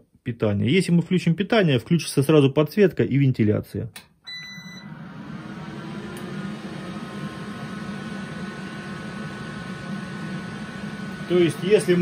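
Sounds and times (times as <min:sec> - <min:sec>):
short high beep: 0:04.3 - 0:04.9
ventilation fan humming: 0:04.8 - 0:12.0.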